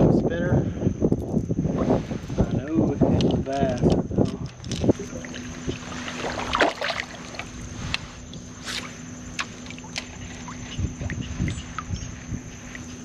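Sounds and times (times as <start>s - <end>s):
water sloshing around kayak: 4.6s - 13.0s
small splashes: 4.9s - 12.0s.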